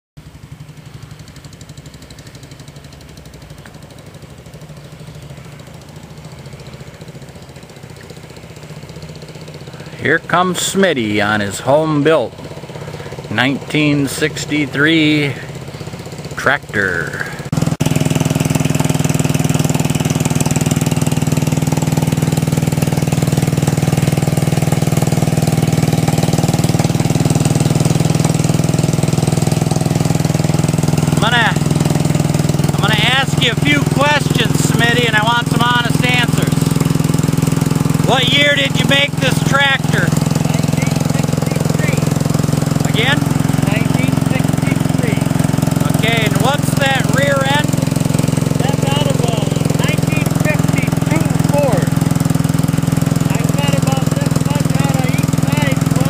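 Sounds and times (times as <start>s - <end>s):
tractor engine puttering: 0.2s - 56.0s.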